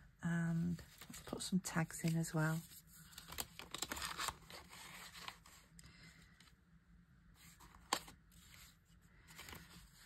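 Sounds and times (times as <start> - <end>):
paper rustling and scraping: 0.6 - 5.7, 7.4 - 10.0.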